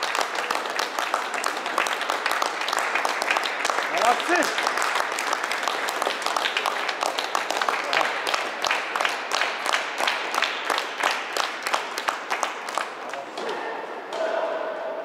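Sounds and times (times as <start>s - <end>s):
people clapping: 0.0s - 13.6s.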